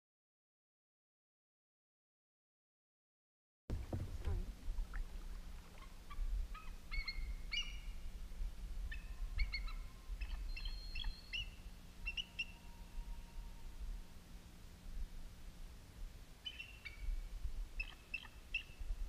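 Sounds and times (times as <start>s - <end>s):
low rumble: 3.7s - 6.6s.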